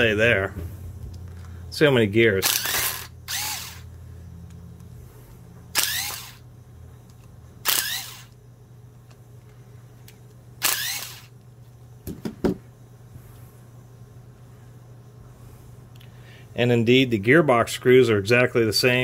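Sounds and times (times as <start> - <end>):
low steady hum: 0.0 - 19.0
cordless screwdriver whining: 2.4 - 4.0, 5.7 - 6.4, 7.6 - 8.4, 10.6 - 11.3.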